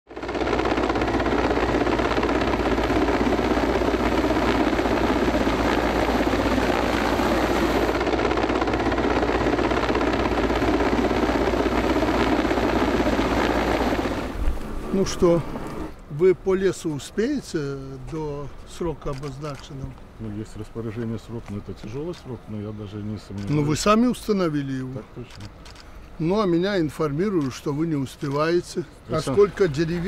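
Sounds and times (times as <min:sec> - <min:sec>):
engine rumble: 0:00.2 - 0:17.0.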